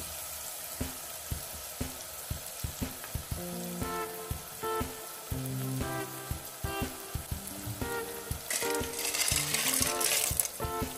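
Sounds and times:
stew sizzling in a pot: 0.0 - 10.9
spatula stirring with knocks: 8.5 - 10.9.

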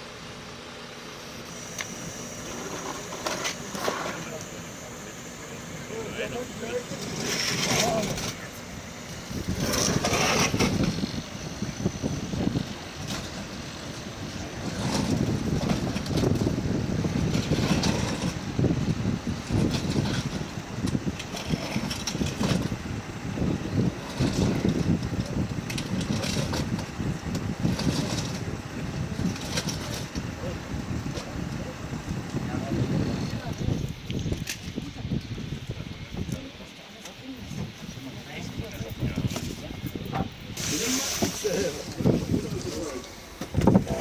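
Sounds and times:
heavy box scraping on paving: 2.4 - 4.4, 6.9 - 8.5, 9.3 - 11.1, 14.5 - 16.4, 17.2 - 18.4, 27.6 - 28.4.

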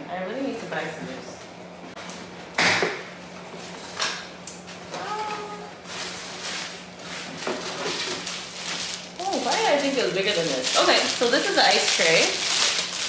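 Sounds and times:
plastic packaging rustling: 5.2 - 13.0.

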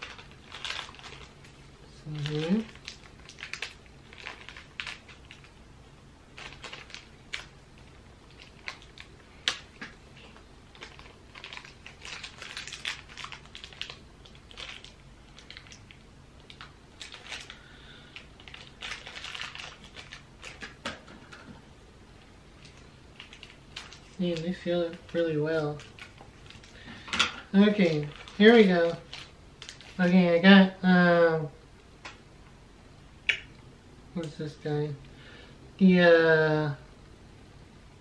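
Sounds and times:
plastic package crinkling: 0.0 - 5.7, 6.3 - 21.5, 22.5 - 30.3.

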